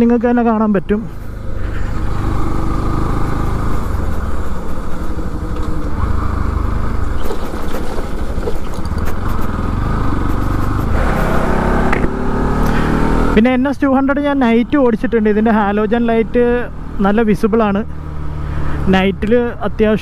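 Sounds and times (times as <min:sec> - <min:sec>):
wind and road noise: 0:00.0 - 0:20.0
motorcycle engine running: 0:00.6 - 0:13.6.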